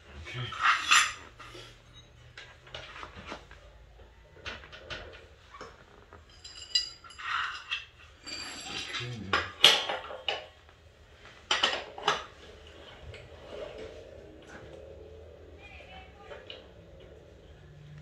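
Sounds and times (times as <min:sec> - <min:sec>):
metal tools clinking and clanking: 0:00.2 - 0:02.4, 0:04.8 - 0:10.5.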